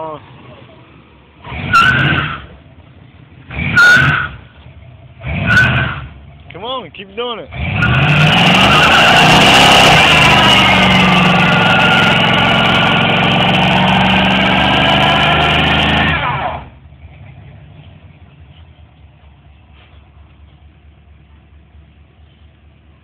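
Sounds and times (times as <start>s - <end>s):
truck engine revving high: 1.4s - 2.6s, 3.4s - 4.5s, 5.1s - 6.2s, 7.4s - 18.2s
tyre squealing: 1.5s - 2.6s, 3.6s - 4.6s, 7.5s - 16.6s.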